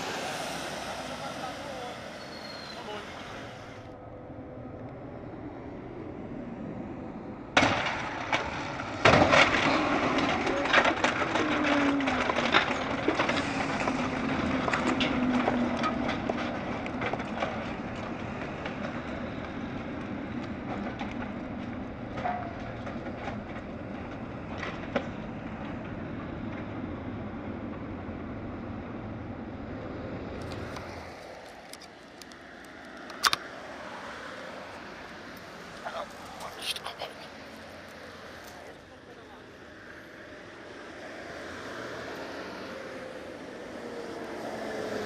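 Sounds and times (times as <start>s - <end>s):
heavy lorries passing: 0.0s - 45.0s
trailers rattling: 7.5s - 41.1s.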